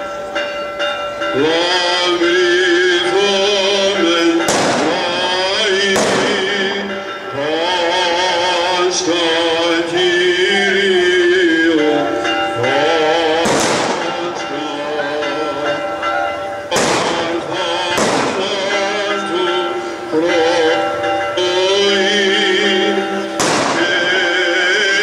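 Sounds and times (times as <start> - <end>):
voices chanting a hymn: 0.0 - 25.0
firecracker bangs: 4.4 - 6.7, 13.4 - 14.5, 16.7 - 18.9, 23.4 - 24.3.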